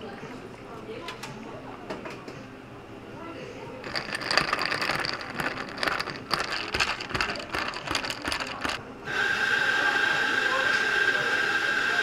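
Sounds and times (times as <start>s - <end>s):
bar spoon stirring ice in glass: 3.8s - 8.8s.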